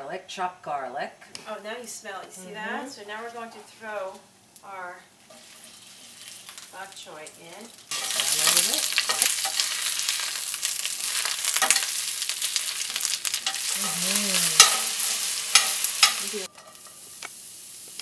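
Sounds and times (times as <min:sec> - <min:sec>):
vegetables sizzling in a skillet: 0:02.8 - 0:18.0
metal tongs clicking on pan: 0:07.7 - 0:10.5, 0:11.1 - 0:13.8, 0:14.4 - 0:17.4.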